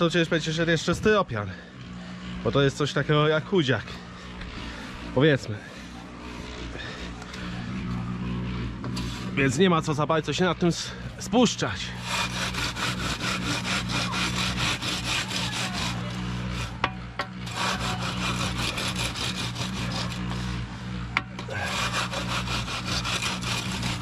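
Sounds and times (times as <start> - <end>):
steady low hum: 0.0 - 24.0
screed board scraping concrete: 8.8 - 9.6, 11.9 - 24.0.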